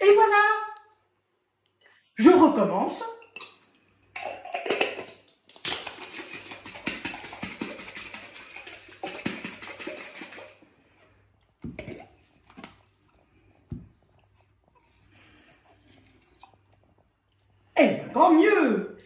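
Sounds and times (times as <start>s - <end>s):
egg rattling in glass jar: 4.2s - 10.6s.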